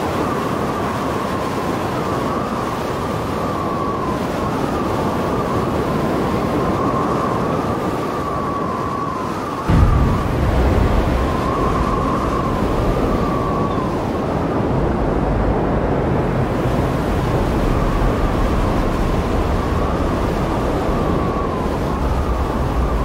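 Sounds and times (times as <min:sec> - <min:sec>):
surf breaking on shore: 0:00.0 - 0:23.0
wind on microphone: 0:00.0 - 0:23.0.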